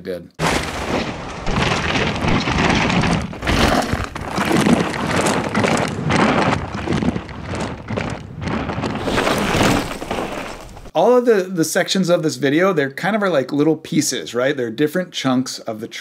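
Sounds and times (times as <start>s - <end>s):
bike tyres rolling over dirt: 0.4s - 10.9s.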